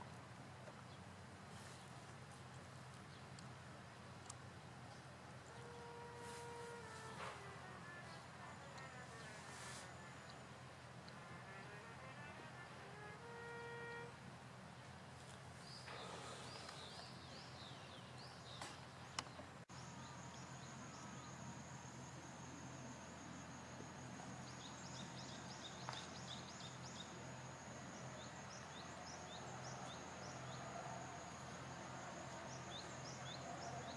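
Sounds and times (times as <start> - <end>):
high thin whine: 5.4 - 14.2.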